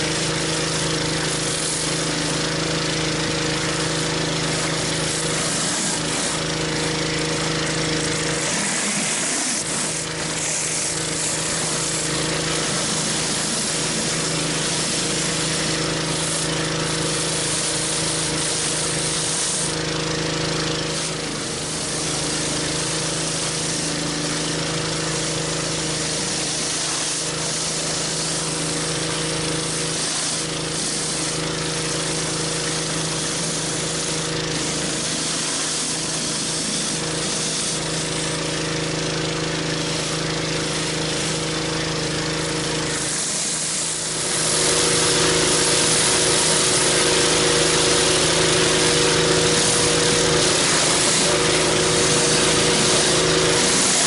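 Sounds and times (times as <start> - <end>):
water jets spraying with hiss: 0.0 - 6.9, 7.6 - 54.0
pressure washer running: 0.0 - 54.0.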